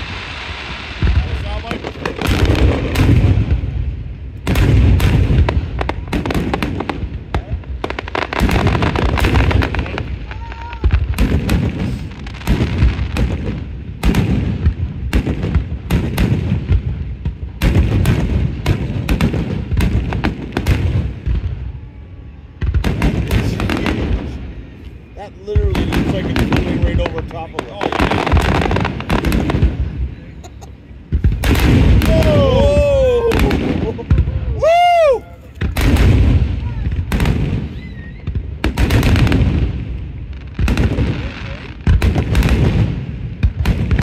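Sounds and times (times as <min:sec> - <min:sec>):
deep firework booms: 0:00.0 - 0:44.0
firework bangs: 0:00.0 - 0:44.0.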